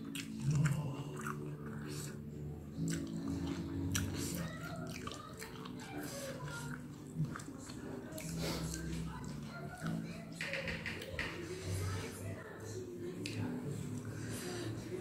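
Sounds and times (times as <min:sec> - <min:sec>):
chewing and mouth noises: 0:00.0 - 0:10.3.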